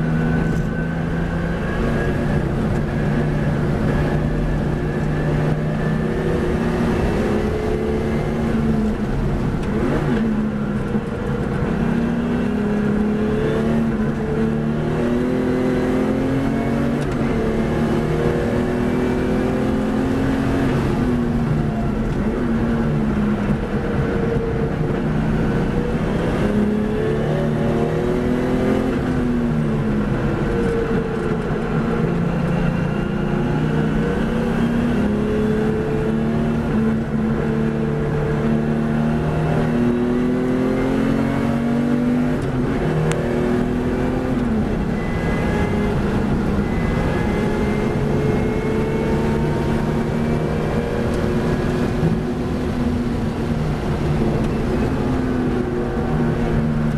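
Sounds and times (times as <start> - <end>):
race car engine: 0.0 - 56.9
wind and road rush: 0.0 - 56.9.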